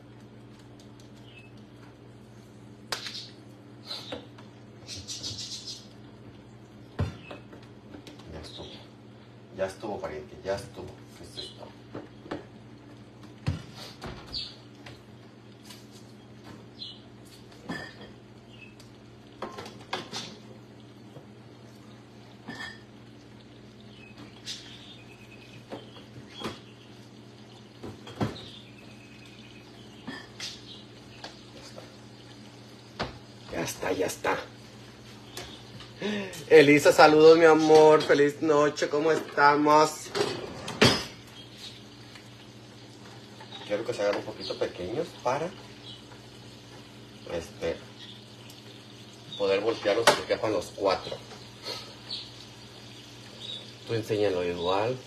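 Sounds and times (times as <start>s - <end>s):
bird chirping: 1.2s - 1.6s, 3.0s - 5.9s, 16.2s - 17.1s, 18.5s - 18.8s, 23.8s - 27.0s, 51.0s - 53.8s.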